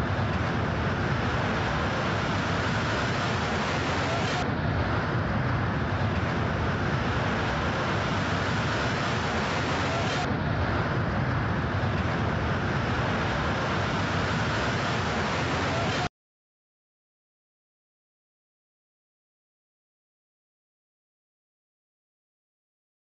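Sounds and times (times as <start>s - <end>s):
distant traffic: 0.0s - 16.1s
wind on microphone: 0.0s - 16.1s.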